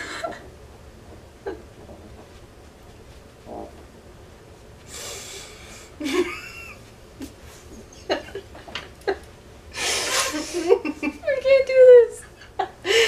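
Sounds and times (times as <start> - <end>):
person giggling: 0.0 - 0.5, 1.4 - 1.7, 6.0 - 6.8.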